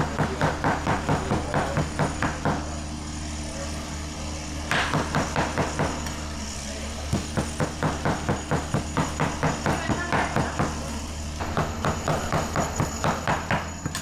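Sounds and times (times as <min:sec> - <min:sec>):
rapid hard knocking: 0:00.0 - 0:02.7, 0:04.7 - 0:06.0, 0:07.1 - 0:10.8, 0:11.4 - 0:14.0
steady low hum: 0:00.0 - 0:14.0.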